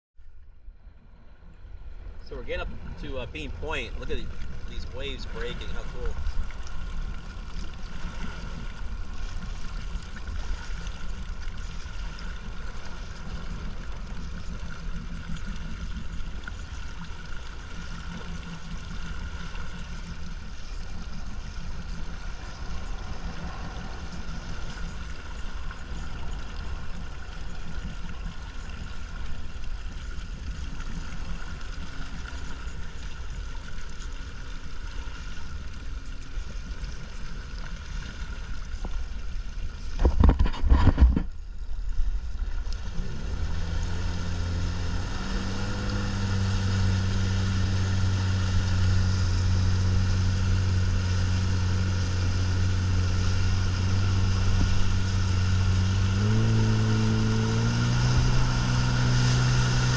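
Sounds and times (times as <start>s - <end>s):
water rushing past hull: 0.2s - 59.9s
boat motor running: 0.3s - 59.9s.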